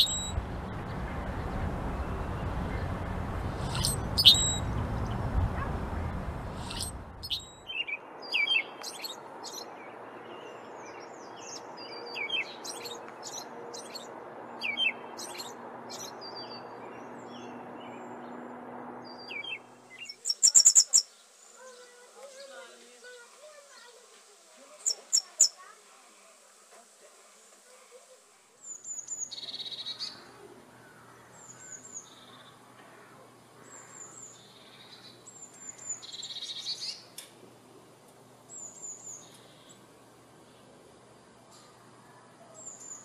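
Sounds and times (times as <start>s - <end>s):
blackbird sharp calls: 0.0s - 0.4s, 3.6s - 5.7s, 6.5s - 9.1s
robin singing whistled phrases: 0.0s - 0.4s, 3.6s - 4.7s, 6.6s - 9.6s, 19.3s - 21.1s, 24.8s - 25.6s
low wind rumble: 0.0s - 8.2s.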